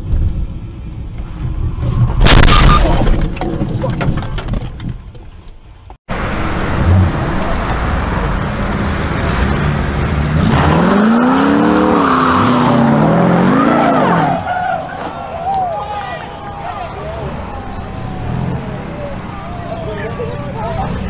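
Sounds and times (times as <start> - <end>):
road noise: 0.0 - 21.0
car engine revving: 6.1 - 14.6, 16.2 - 21.0.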